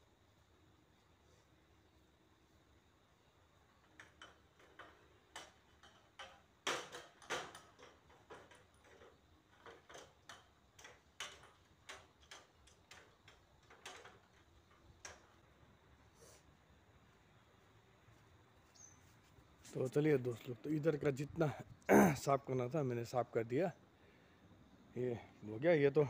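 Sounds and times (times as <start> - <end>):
knocks and clicks of step ladder: 3.8 - 15.4.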